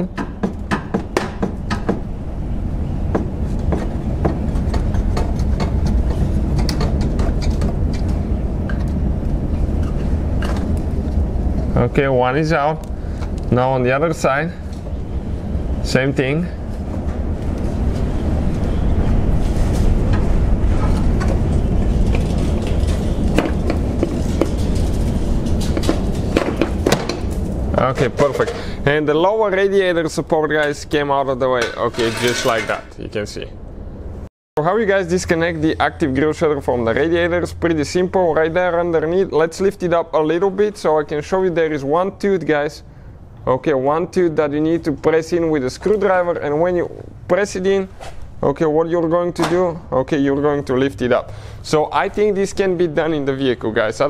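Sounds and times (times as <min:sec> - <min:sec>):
low rumble: 0:02.0 - 0:30.2
knocks and scrapes: 0:03.1 - 0:11.6, 0:16.7 - 0:28.7, 0:31.6 - 0:33.0.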